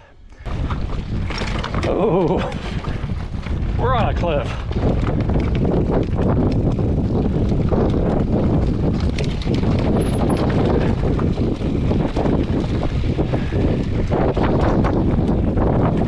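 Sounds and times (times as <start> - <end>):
wind buffeting microphone: 0.4 - 16.0
clatter of knocks and rattles: 0.5 - 3.6, 4.6 - 12.8.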